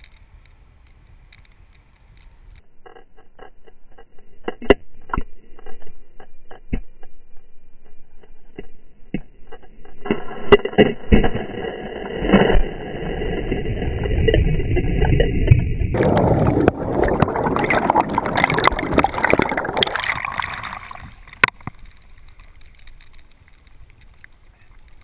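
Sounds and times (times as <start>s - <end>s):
underwater churning bubbles: 11.2s - 21.7s.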